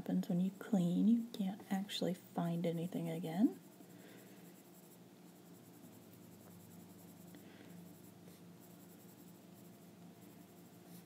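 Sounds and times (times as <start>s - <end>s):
pencil scratching on paper: 2.7s - 11.0s.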